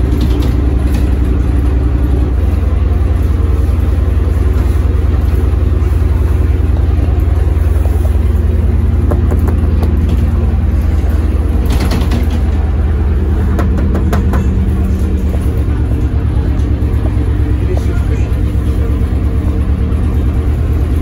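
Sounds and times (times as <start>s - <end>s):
bus engine running: 0.0s - 21.0s
clicks and rattles: 9.0s - 12.8s.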